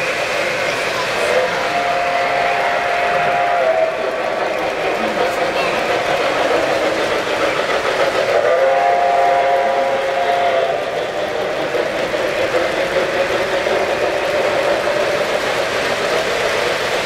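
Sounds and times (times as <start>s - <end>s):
toy trains rolling on track: 0.0s - 17.0s
model train chord whistle: 1.4s - 4.1s, 8.4s - 10.9s.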